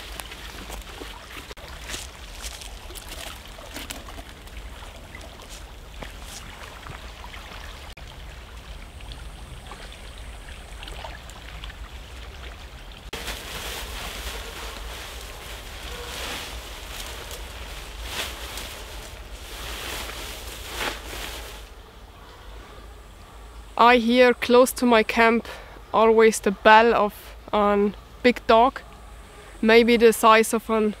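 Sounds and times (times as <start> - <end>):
stream trickling: 0.0 - 20.3.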